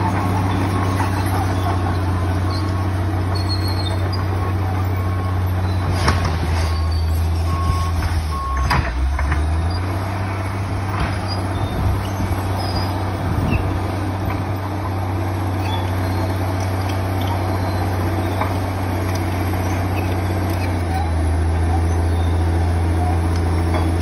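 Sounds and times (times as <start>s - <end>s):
diesel engine running: 0.0s - 24.0s
reversing alarm beeping: 6.6s - 8.8s.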